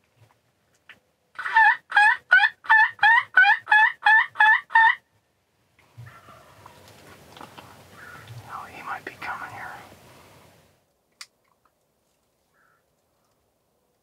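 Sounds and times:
turkey hen yelps: 1.4 - 5.0, 6.0 - 6.9.

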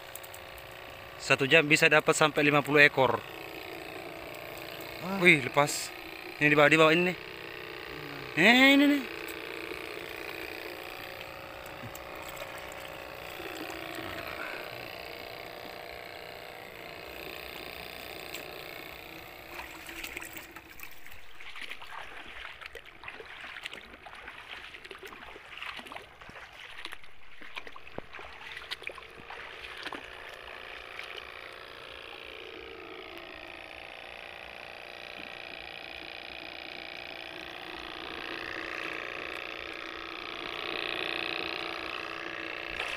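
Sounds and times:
footsteps splashing through water: 19.5 - 30.4.

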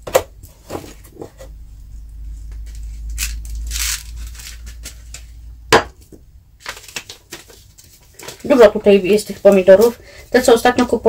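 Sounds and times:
paper packet rustling: 2.6 - 5.3, 6.6 - 10.6.

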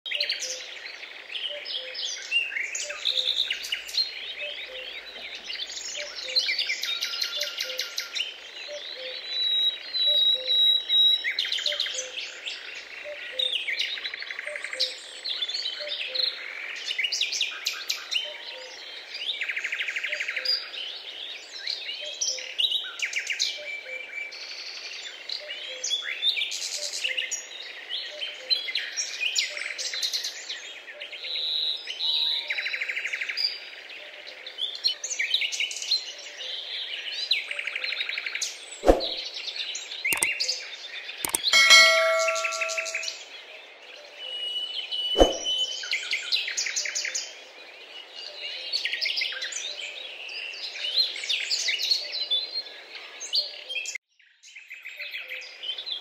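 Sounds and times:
songbirds chirping: 0.2 - 17.2.

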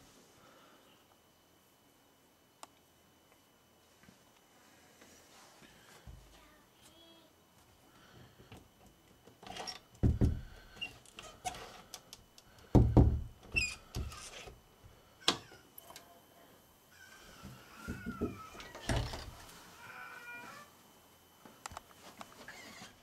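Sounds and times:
door thumping against frame: 10.0 - 10.6, 12.7 - 13.4.

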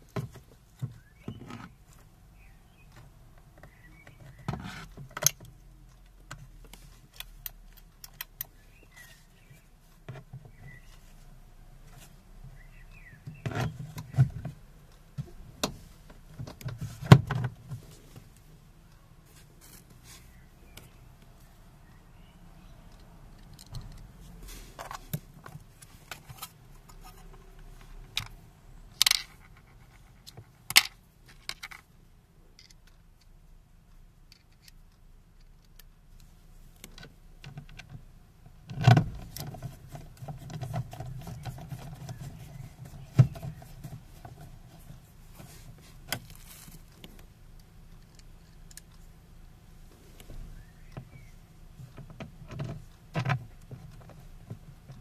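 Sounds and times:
rubbing against plastic panel: 39.0 - 46.8.

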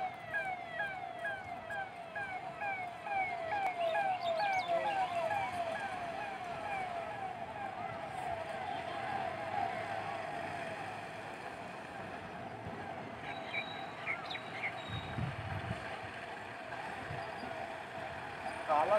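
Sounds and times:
electronic siren falling yelp: 0.0 - 8.0.

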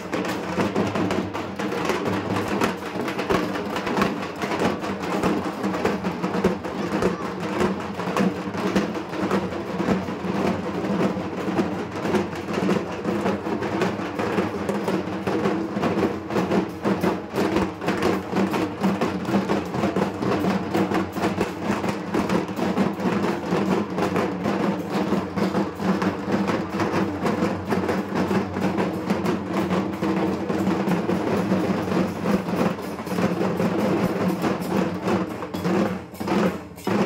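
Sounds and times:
barrel drums beaten rapidly: 0.0 - 37.0.

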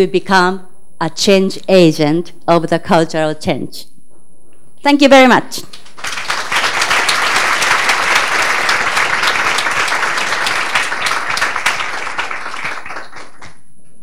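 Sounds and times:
audience applauding: 5.7 - 13.7.

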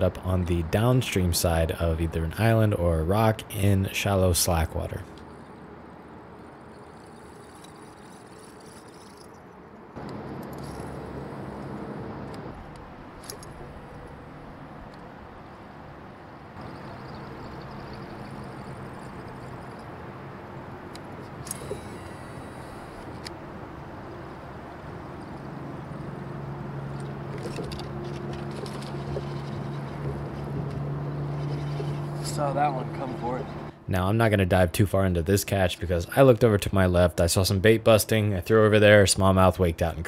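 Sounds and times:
fishing reel clicking: 6.6 - 9.4.

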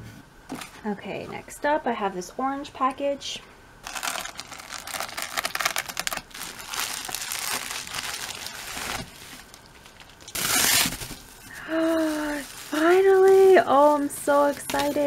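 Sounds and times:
bubble wrap crinkling: 3.8 - 15.0
bubble wrap ripping: 3.8 - 15.0.

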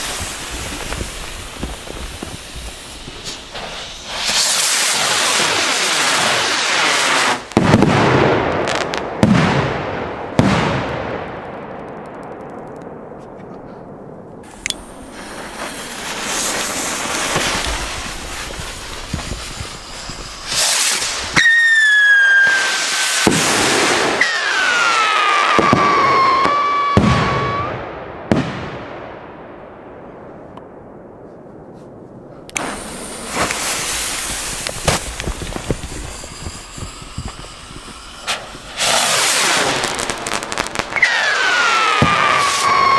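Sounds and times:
whistling rocket shrieking: 0.0 - 7.4, 14.5 - 27.9, 32.6 - 42.9
firework rockets launching with hiss: 0.0 - 10.9, 14.4 - 28.7, 32.4 - 42.9
firework bangs: 0.0 - 30.9, 32.5 - 42.9.

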